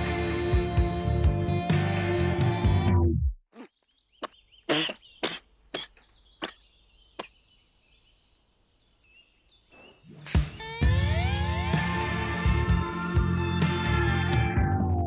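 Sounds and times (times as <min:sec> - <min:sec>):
music: 0:00.0 - 0:03.3, 0:10.3 - 0:15.0
faint bird chirping: 0:03.6 - 0:10.7.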